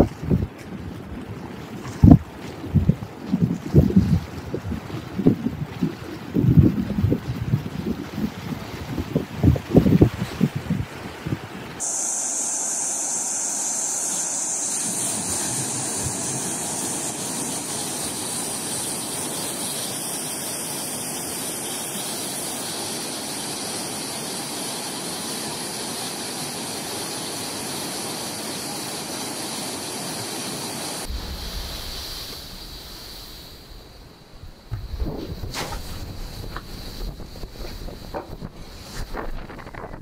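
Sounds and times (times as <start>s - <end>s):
wind on microphone: 0.0s - 19.6s, 31.0s - 40.0s
storm surf: 0.0s - 21.4s, 31.0s - 40.0s
flood water rushing over weir: 0.0s - 40.0s.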